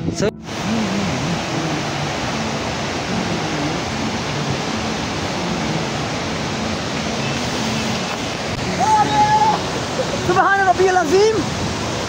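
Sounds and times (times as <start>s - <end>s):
stream rushing over boulders: 0.2s - 12.0s.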